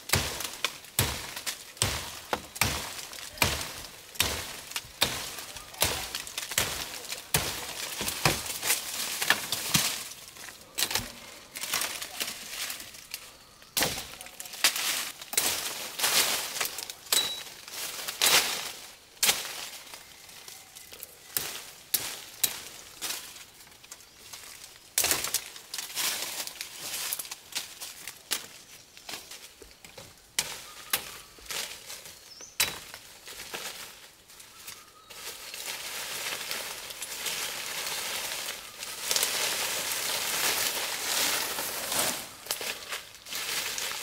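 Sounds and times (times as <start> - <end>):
dry leaves and twigs crackling: 0.0 - 44.0.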